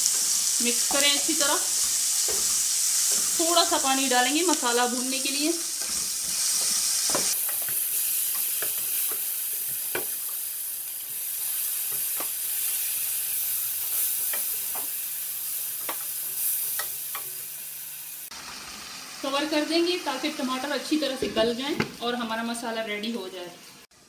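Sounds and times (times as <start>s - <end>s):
wooden spatula scraping a pan: 0.0s - 10.3s
masala sizzling in a pot: 0.0s - 24.0s.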